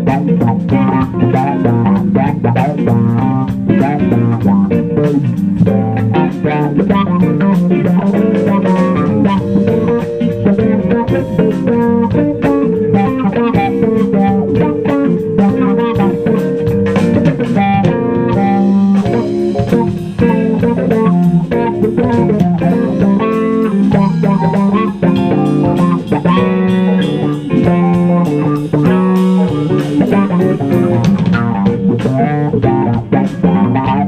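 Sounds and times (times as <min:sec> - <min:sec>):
drum kit: 0:00.0 - 0:34.0
electric bass: 0:00.0 - 0:34.0
electric guitar: 0:00.0 - 0:34.0.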